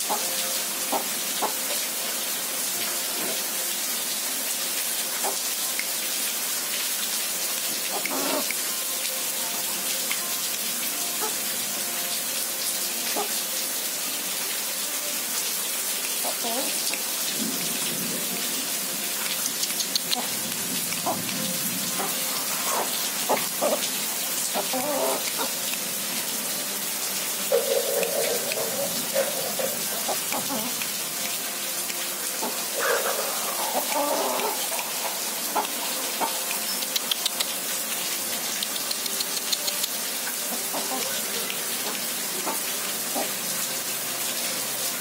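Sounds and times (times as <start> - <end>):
steady rain: 0.0 - 45.0
hen clucking: 27.5 - 30.8.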